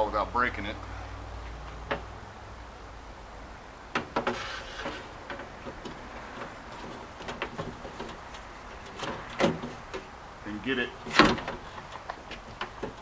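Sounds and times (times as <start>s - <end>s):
glass scraping: 4.0s - 9.9s.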